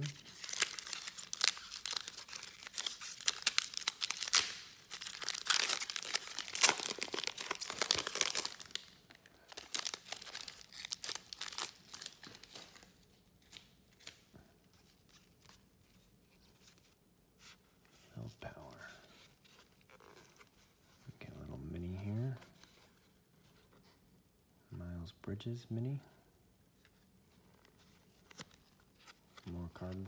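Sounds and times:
wrapper tearing and crinkling: 0:00.0 - 0:14.2.

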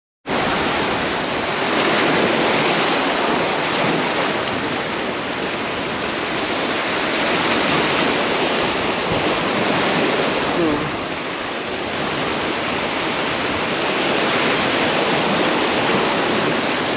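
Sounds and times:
surf breaking over rocks: 0:00.3 - 0:16.9
wind buffeting microphone: 0:00.3 - 0:16.9.

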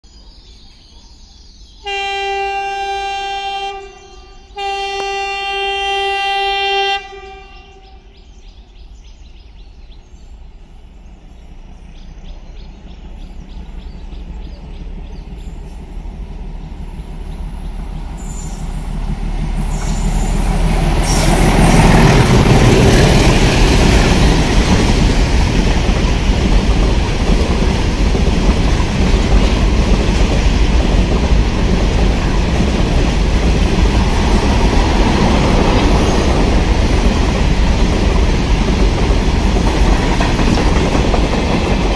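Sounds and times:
train rumbling past: 0:01.4 - 0:41.9
locomotive horn blasts: 0:01.8 - 0:08.1.

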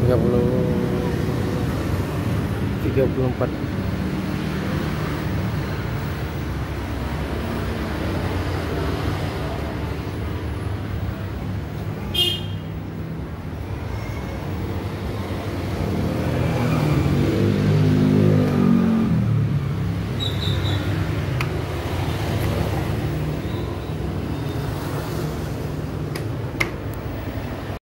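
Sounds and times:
road traffic rumble: 0:00.0 - 0:27.8
vehicle engine passing close: 0:15.3 - 0:26.0
brief high squeak: 0:20.2 - 0:20.9.

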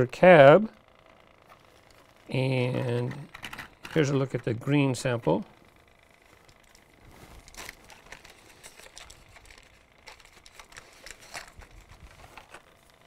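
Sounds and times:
small handling clicks and crinkling: 0:01.0 - 0:04.6, 0:06.2 - 0:13.0.

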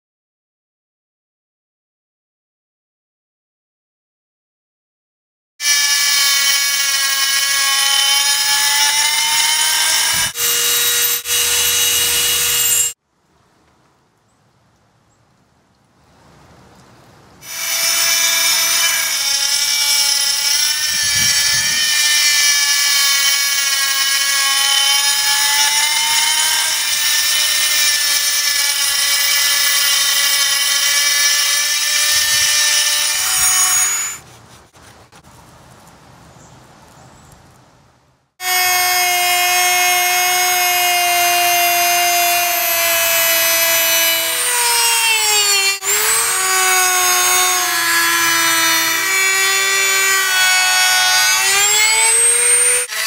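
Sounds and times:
rotary tool whining: 0:05.6 - 0:13.0, 0:38.4 - 0:53.0.

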